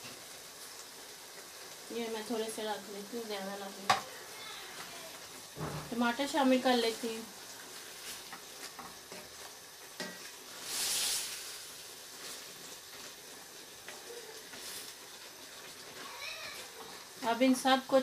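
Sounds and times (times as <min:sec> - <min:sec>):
meat sizzling in a pot: 0:00.0 - 0:18.0
wooden spoon stirring: 0:12.1 - 0:17.3.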